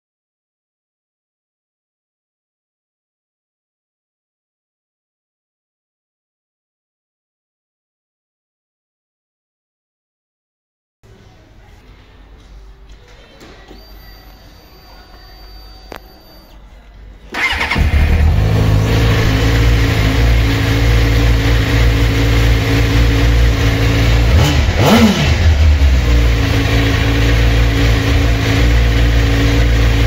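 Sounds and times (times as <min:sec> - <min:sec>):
motorcycle throttle blips: 0:17.3 - 0:30.0
motorcycle engine idling: 0:17.4 - 0:30.0.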